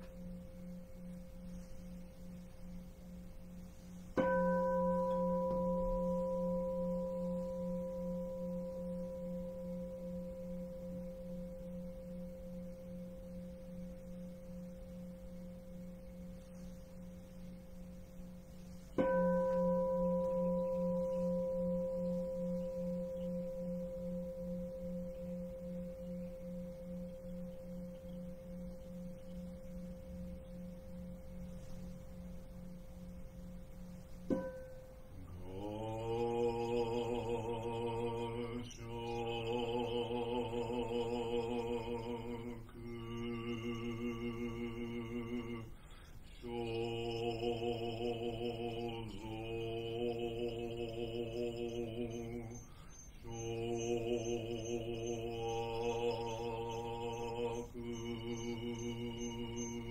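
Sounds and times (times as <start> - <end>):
bowl bell ringing: 0.0 - 59.9
pulsing low hum: 0.0 - 59.9.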